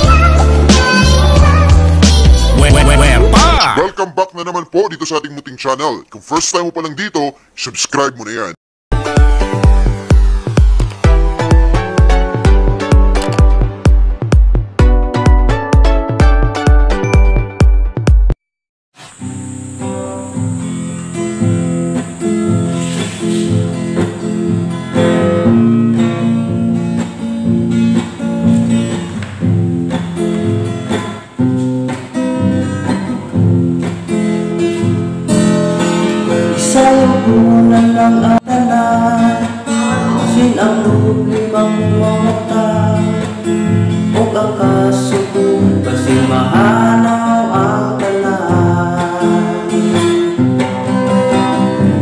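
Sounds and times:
acoustic guitar strumming: 0.0s - 3.9s, 8.9s - 18.1s, 19.0s - 52.0s
man singing: 2.1s - 5.0s, 36.5s - 50.2s.

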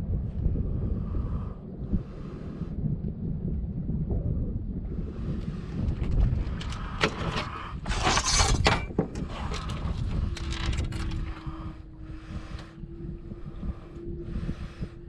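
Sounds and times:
faint steady hum: 0.0s - 15.0s
low wind rumble: 0.0s - 15.0s
scraping rush: 5.9s - 12.6s
handling clicks and rattles: 6.0s - 11.4s.

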